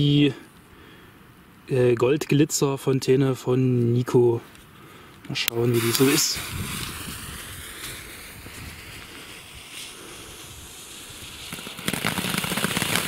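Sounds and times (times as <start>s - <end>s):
firework fountain spraying sparks: 5.5s - 13.0s
dense firework crackling: 5.6s - 13.0s.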